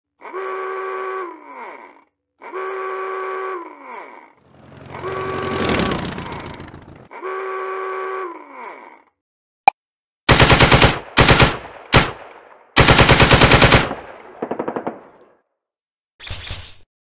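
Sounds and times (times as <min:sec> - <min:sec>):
buzzing electronic tone sliding down: 0:04.4 - 0:07.0.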